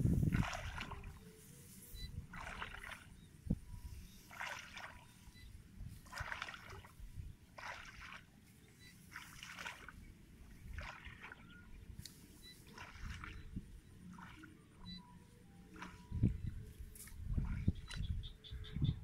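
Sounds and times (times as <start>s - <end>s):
wading steps splashing in water: 0.2s - 1.2s, 2.2s - 3.2s, 4.2s - 5.4s, 6.0s - 14.5s.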